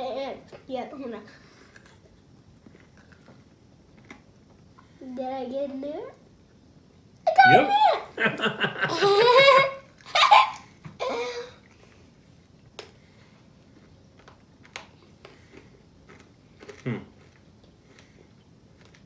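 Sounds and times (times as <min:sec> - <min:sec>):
man laughing heartily: 0:08.1 - 0:10.6.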